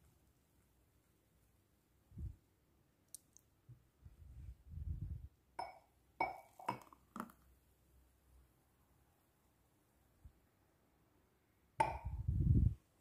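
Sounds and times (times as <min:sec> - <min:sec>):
glassware clinking: 0:05.6 - 0:06.9.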